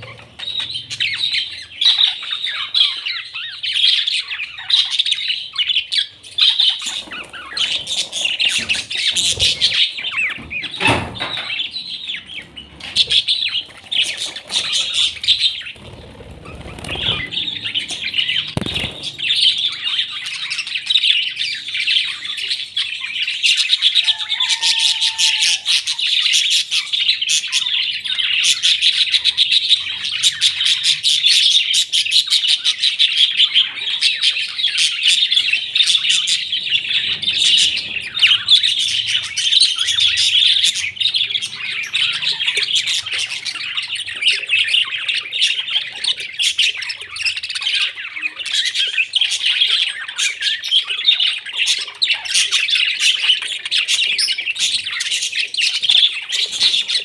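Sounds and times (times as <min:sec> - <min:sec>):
budgerigars chattering and warbling: 0:00.0 - 0:57.0.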